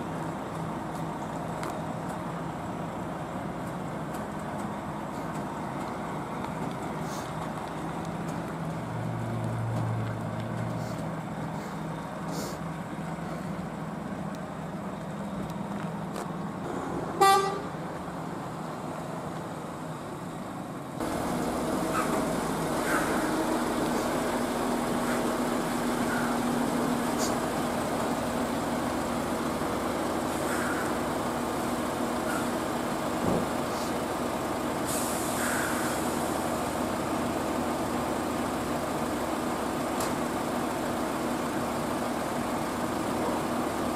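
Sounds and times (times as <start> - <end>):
diesel truck engine running: 0.0 - 43.9
vehicle horn toot: 17.2 - 17.7.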